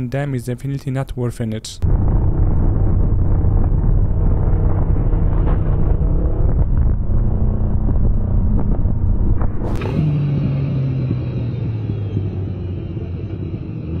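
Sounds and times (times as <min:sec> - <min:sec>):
wind rush on microphone: 0:01.8 - 0:10.0
motorcycle engine running: 0:02.7 - 0:14.0.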